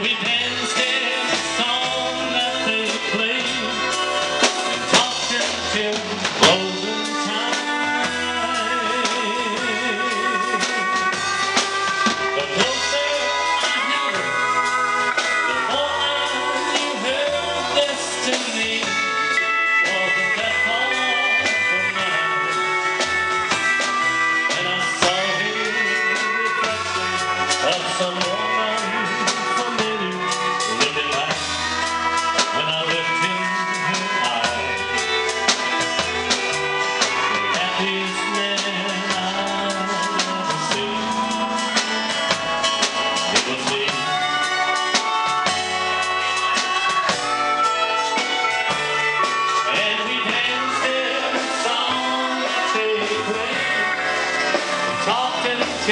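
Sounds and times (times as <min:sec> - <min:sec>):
drum kit: 0:00.0 - 0:55.9
fiddle: 0:00.0 - 0:55.9
pedal steel guitar: 0:00.0 - 0:55.9
upright bass: 0:00.0 - 0:55.9.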